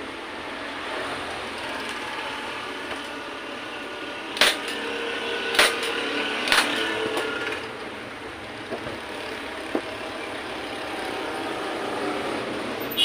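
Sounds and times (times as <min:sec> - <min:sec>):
steady background noise: 0:00.0 - 0:13.0
staple gun clacks: 0:05.5 - 0:07.3.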